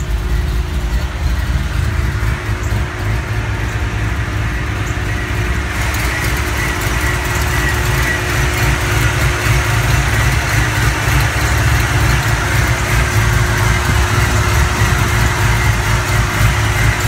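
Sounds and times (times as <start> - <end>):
supercharged engine idling: 0.0 - 17.0.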